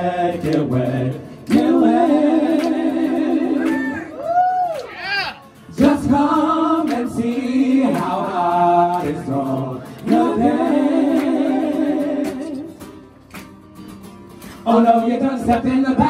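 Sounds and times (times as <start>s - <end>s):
male vocal group singing harmony: 0.0s - 4.3s, 5.7s - 12.8s, 14.5s - 16.0s.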